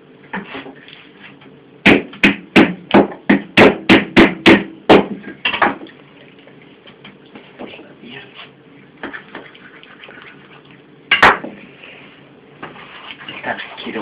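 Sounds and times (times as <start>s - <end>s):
knife chopping chicken on table: 1.9s - 5.8s.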